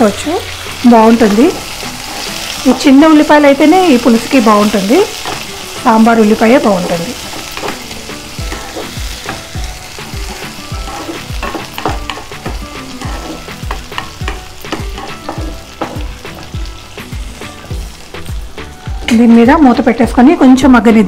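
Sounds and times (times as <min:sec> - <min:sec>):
onions sizzling in hot oil: 0:00.0 - 0:21.0
spatula scraping pan: 0:01.5 - 0:02.7, 0:07.2 - 0:16.5.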